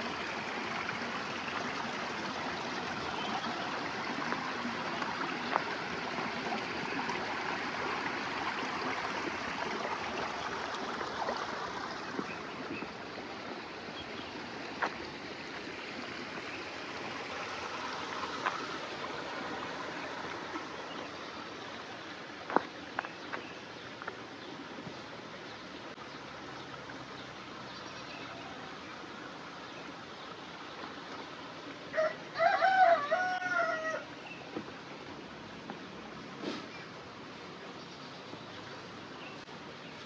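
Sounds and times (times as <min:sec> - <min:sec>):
stream water rushing: 0:00.0 - 0:40.0.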